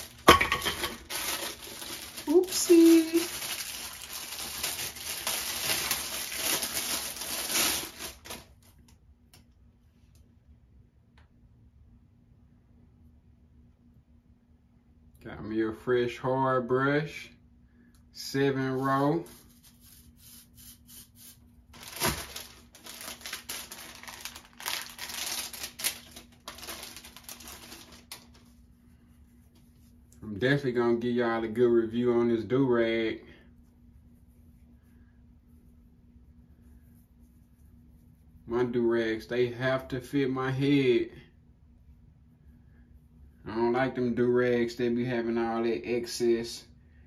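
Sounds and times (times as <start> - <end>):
packaging wrapper crinkling: 0.0 - 8.8, 21.7 - 28.6.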